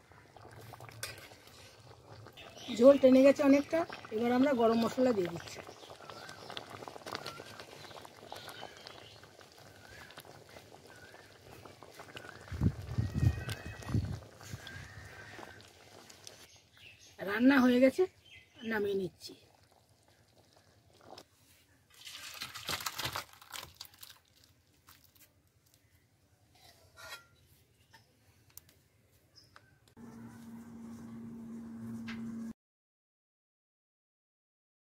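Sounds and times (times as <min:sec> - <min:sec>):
curry bubbles popping: 0:00.0 - 0:16.5, 0:18.8 - 0:21.2
curry pouring into bowl: 0:21.9 - 0:25.1
pan scraping against bowl: 0:26.6 - 0:27.5
steady low tone: 0:30.0 - 0:32.5.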